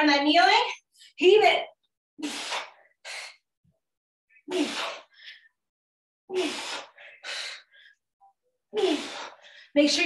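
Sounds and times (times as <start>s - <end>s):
woman breathing hard: 6.3s - 8.1s, 8.7s - 9.8s.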